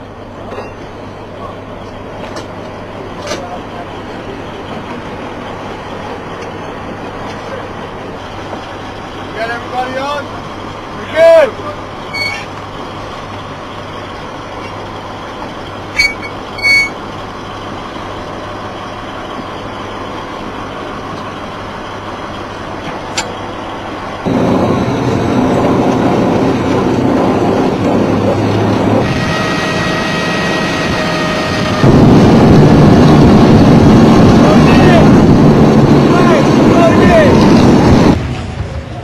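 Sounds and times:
steady whine: 0:00.0 - 0:39.0
vehicle engine drone: 0:00.0 - 0:39.0.

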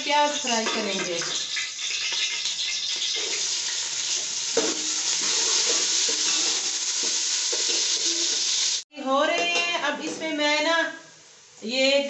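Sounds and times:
onions sizzling in hot oil: 0:00.0 - 0:08.9
spatula stirring in metal pot: 0:04.6 - 0:08.6.

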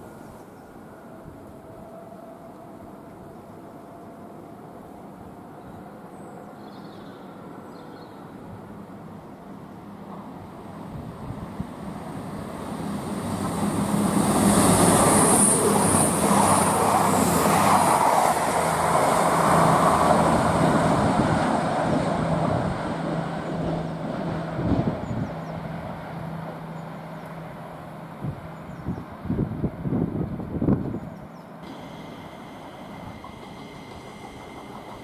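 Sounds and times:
wheels rushing on rail: 0:00.0 - 0:35.0
brief high whine: 0:31.6 - 0:35.0
diesel engines droning: 0:31.6 - 0:35.0.

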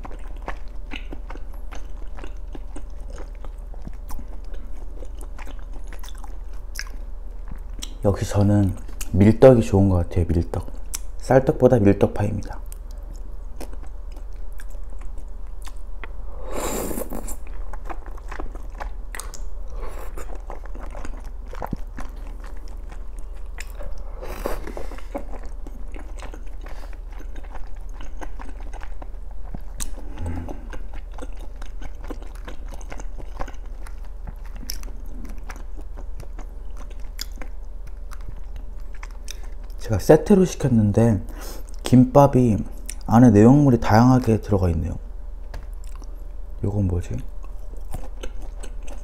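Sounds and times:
wet chewing mouth sounds: 0:00.0 - 0:08.0, 0:12.6 - 0:16.2, 0:16.8 - 0:39.8, 0:45.5 - 0:46.2, 0:47.2 - 0:49.0.

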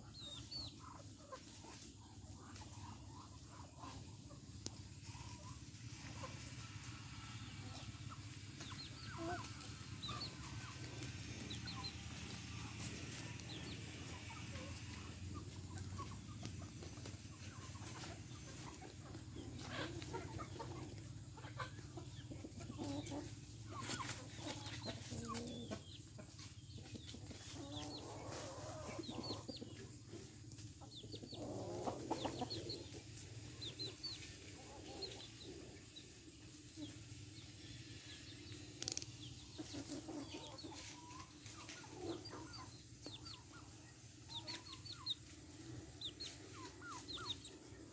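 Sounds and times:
chickens clucking: 0:00.0 - 0:47.9
rustling in dry leaves: 0:39.8 - 0:42.6.

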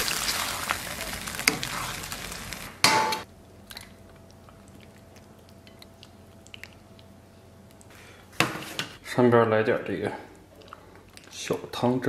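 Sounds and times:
sauce sizzling in a wok: 0:00.0 - 0:03.2.

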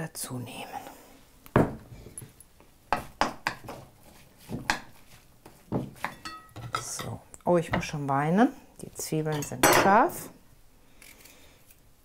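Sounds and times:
wooden spoon knocking on bowl: 0:02.9 - 0:03.8.

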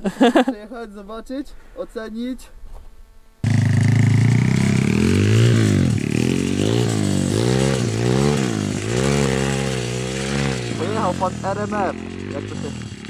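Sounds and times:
small engine revving hard: 0:03.4 - 0:13.0.

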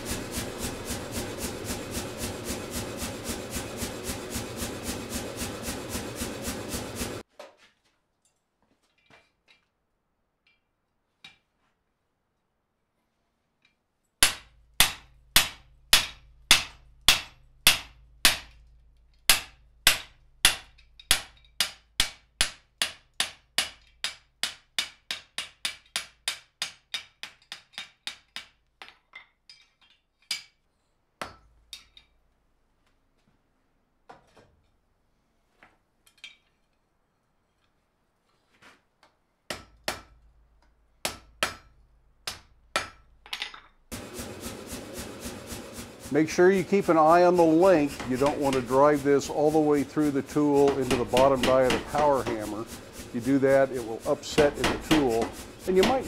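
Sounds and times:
power hammer pounding steel: 0:00.0 - 0:07.2, 0:14.2 - 0:18.6, 0:19.3 - 0:27.2, 0:41.0 - 0:43.0, 0:43.9 - 0:56.0
hand hammer striking steel: 0:14.2 - 0:18.6, 0:19.3 - 0:29.0, 0:39.5 - 0:43.4, 0:47.4 - 0:56.0.

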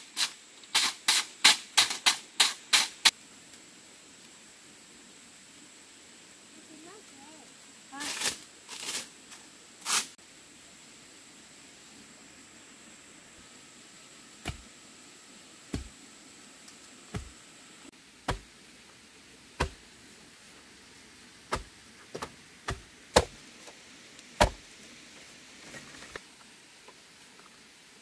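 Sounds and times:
sharp chopping strikes: 0:14.4 - 0:14.7, 0:15.7 - 0:16.0, 0:17.1 - 0:17.4, 0:18.2 - 0:18.5, 0:19.6 - 0:19.8, 0:21.5 - 0:23.4, 0:24.4 - 0:24.6.

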